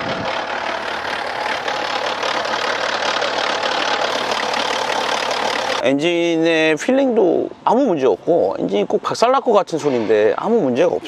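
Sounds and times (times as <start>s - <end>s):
diesel engine idling with clatter: 0.0s - 5.8s.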